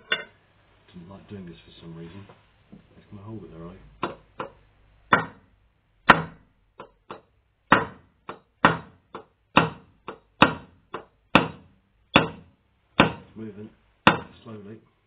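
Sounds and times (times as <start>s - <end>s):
hammer tapping steel punch: 12.2s - 12.4s.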